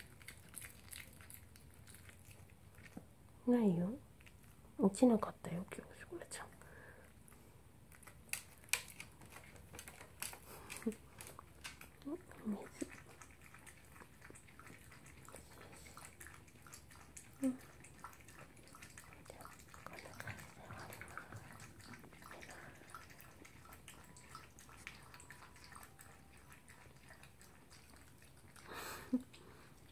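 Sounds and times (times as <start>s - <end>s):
dog lapping from bowl: 11.4s - 29.9s.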